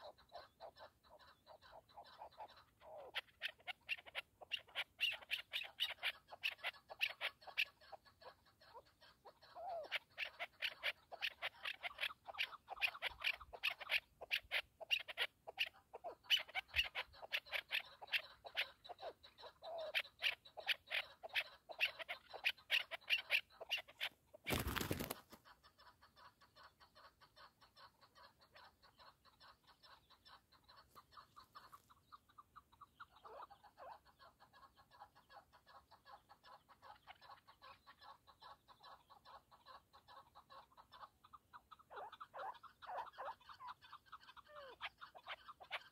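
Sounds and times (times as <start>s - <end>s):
partridge clucking calls: 0.0s - 45.9s.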